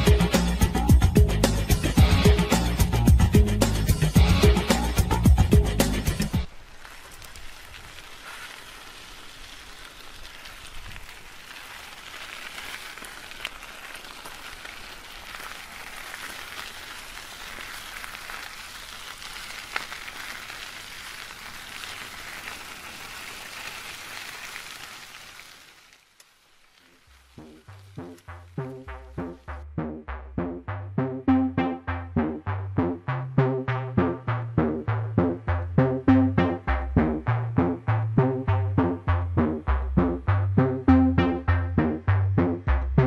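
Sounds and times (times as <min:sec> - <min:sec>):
reeds and grass rustling in wind: 0:06.4 - 0:29.3.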